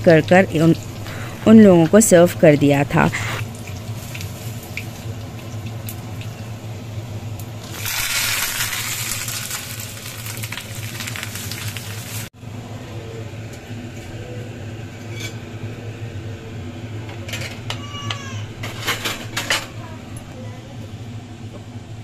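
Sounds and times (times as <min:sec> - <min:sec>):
low hum: 0:00.0 - 0:03.8
spices sizzling in hot oil: 0:03.4 - 0:06.6, 0:07.4 - 0:12.3.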